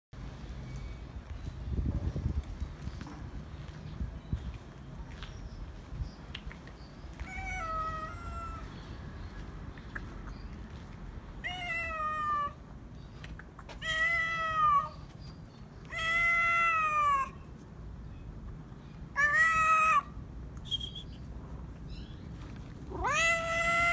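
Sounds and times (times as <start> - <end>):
cat meowing: 7.2 - 8.6, 11.4 - 12.6, 13.8 - 15.0, 15.9 - 17.4, 19.2 - 20.2, 22.9 - 23.9.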